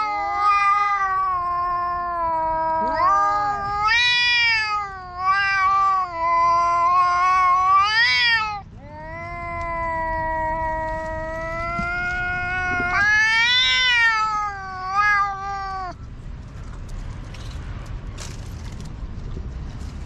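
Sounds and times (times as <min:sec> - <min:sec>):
cats yowling: 0:00.0 - 0:16.0.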